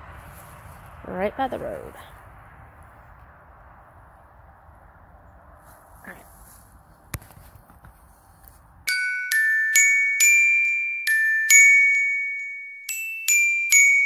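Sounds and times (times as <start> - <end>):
slow bell-like melody: 8.9 - 14.0.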